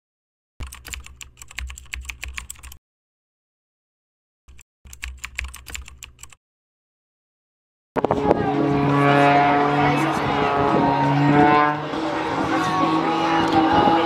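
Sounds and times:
keyboard key clicks: 0.6s - 2.8s, 4.5s - 6.4s.

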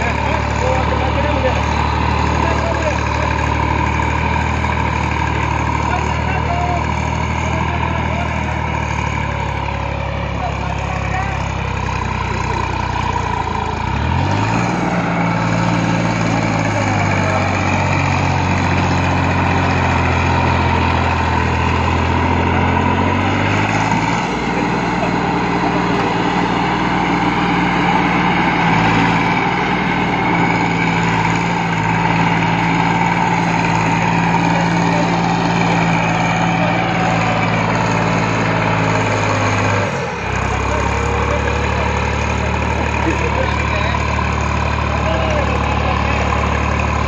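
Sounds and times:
tractor diesel engine under load: 0.0s - 47.0s.

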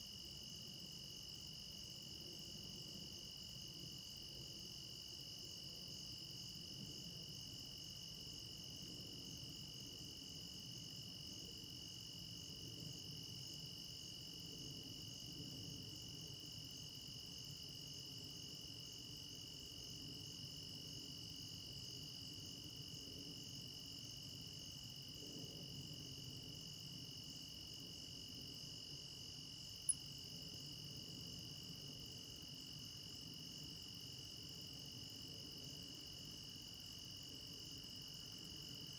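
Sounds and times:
crickets and insects singing: 16.0s - 38.9s.

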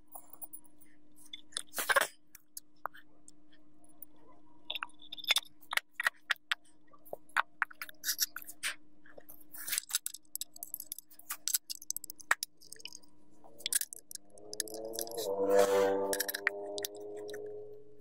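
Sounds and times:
metal screws clicking on metal: 9.6s - 15.2s, 16.0s - 17.5s.

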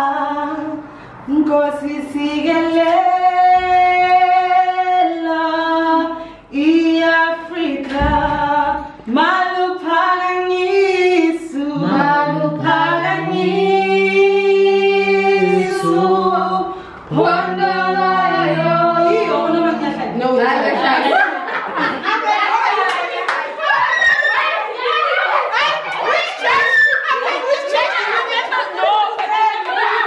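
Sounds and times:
lower voice singing: 0.0s - 20.3s
woman singing unaccompanied: 0.0s - 20.8s.

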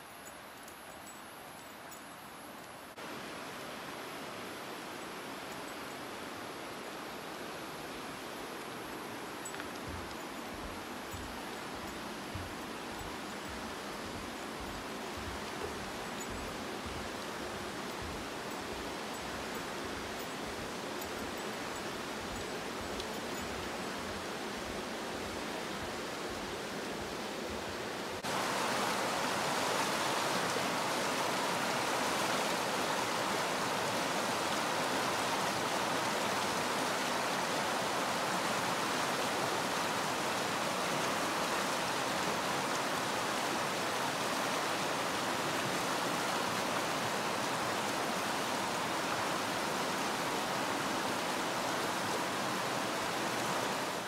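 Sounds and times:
creek water rushing: 0.0s - 54.0s.

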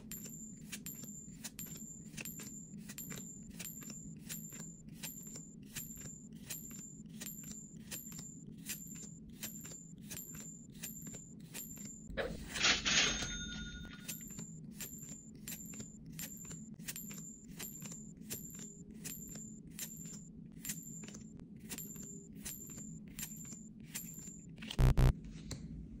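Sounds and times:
short clicks with high ding: 12.6s - 14.3s.

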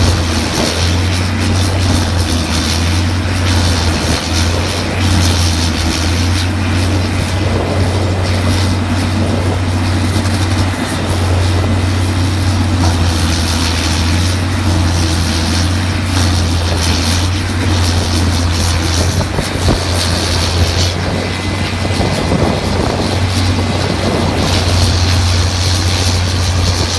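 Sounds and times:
wood chipper running: 0.0s - 26.9s.

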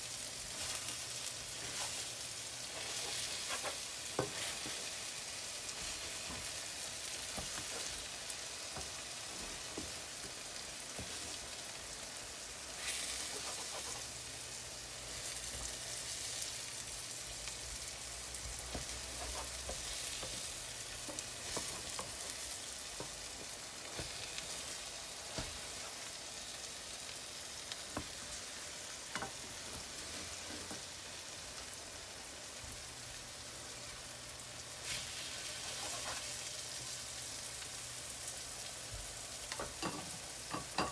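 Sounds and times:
pancake sizzling in oil: 0.0s - 40.9s
spatula clicks and scrapes: 2.7s - 4.8s, 12.8s - 14.2s, 18.8s - 20.4s.

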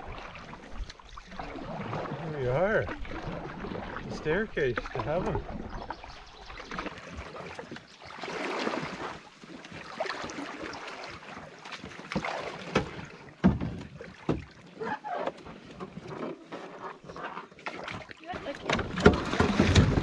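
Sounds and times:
paddle strokes splashing water: 0.0s - 20.0s.

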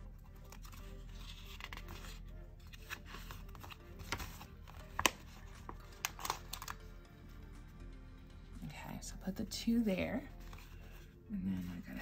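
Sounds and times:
soft background music: 0.0s - 12.0s.

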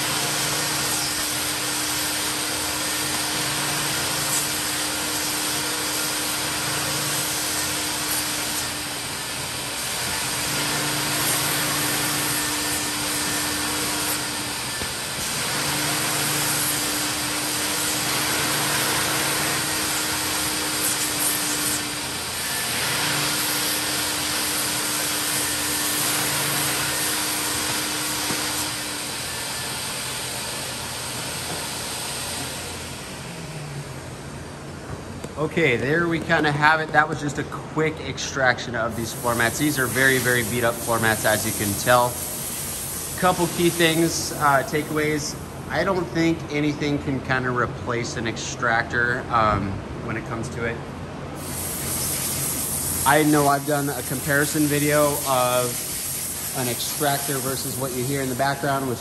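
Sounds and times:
carpet extractor vacuum rushing: 0.0s - 35.5s
steady hum: 0.0s - 59.0s.

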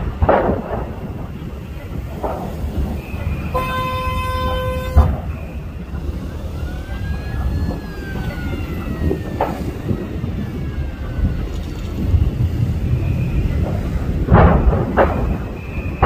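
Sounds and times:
distant emergency siren wailing: 0.0s - 16.0s
heavy low rumble: 0.0s - 16.0s
vehicle horn: 3.5s - 5.3s.

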